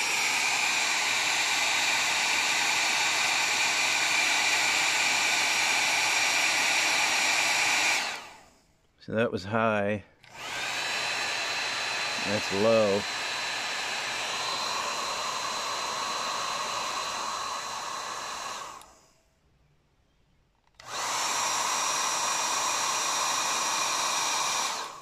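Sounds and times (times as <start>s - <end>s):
hair dryer whining: 0.0s - 8.6s, 10.2s - 19.2s, 20.7s - 25.0s.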